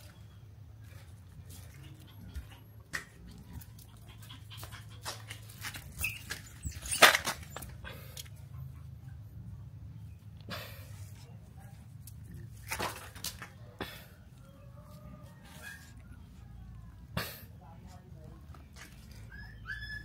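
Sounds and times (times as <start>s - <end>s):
puppy making soft sounds: 1.4s - 9.7s, 14.4s - 17.2s, 18.8s - 20.0s.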